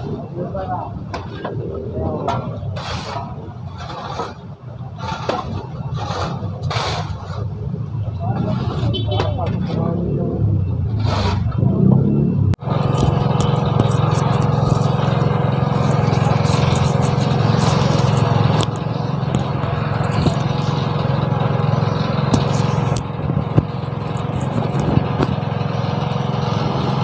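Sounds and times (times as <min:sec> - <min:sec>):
engine water pump running: 0:12.6 - 0:27.0.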